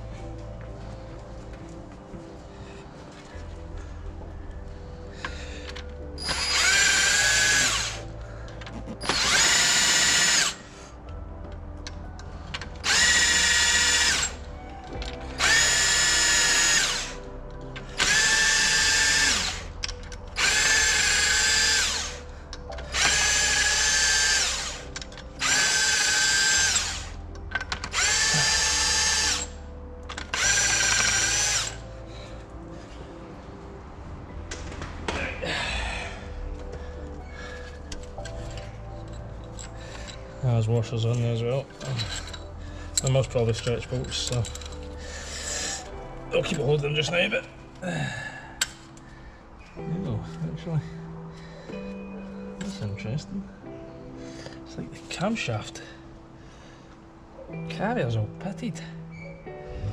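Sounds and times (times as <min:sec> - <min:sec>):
cordless power tool whining: 0:05.7 - 0:10.7, 0:12.6 - 0:32.2.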